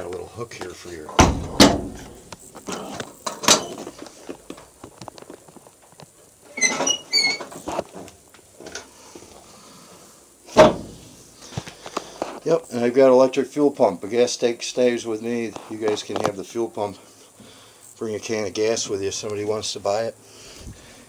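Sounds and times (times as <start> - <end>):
knocks and thumps inside van: 1.2 - 2.0, 10.6 - 11.0
short high squeaks: 6.5 - 7.6.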